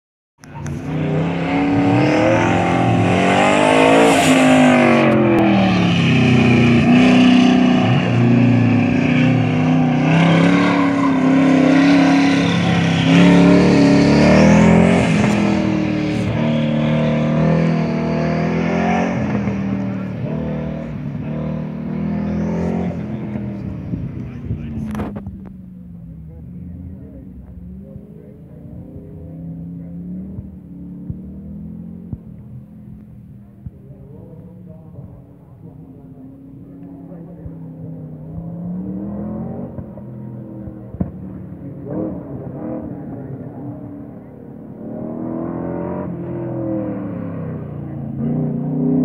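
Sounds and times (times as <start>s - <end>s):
car engine revving: 0.4s - 49.0s.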